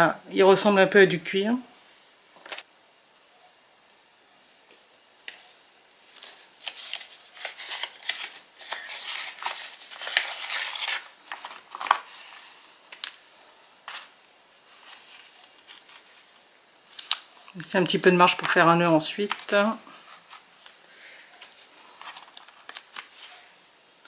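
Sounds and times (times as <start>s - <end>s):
paper rustling and crinkling: 4.7s - 12.5s, 13.8s - 23.6s.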